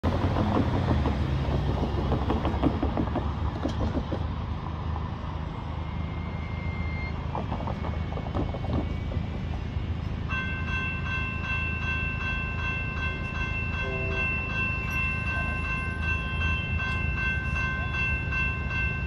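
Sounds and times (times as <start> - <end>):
low rumble of passing cars: 0.0 - 19.0
tyres clattering over rails: 0.1 - 4.4.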